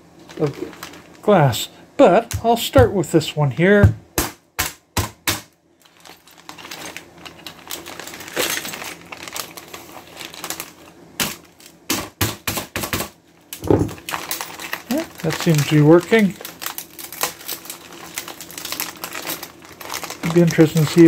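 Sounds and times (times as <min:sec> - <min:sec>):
plastic bag rustling: 0:00.1 - 0:01.6, 0:05.7 - 0:11.8, 0:13.6 - 0:21.0.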